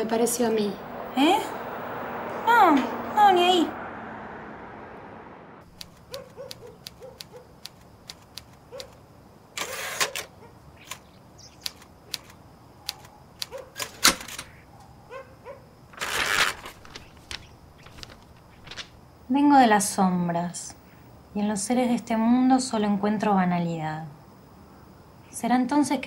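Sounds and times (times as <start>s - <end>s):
paper rasping from typewriter roller: 16.0s - 18.8s.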